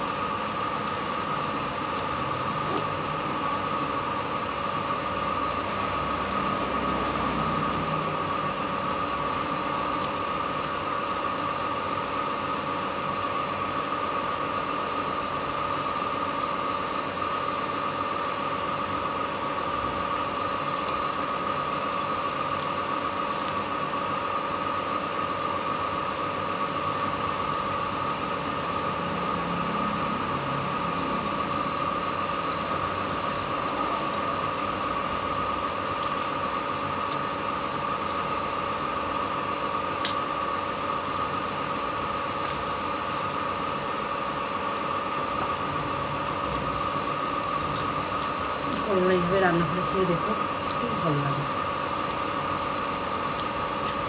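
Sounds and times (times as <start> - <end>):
constant high whine: 0.0 - 54.0
mechanical hum: 0.0 - 54.0.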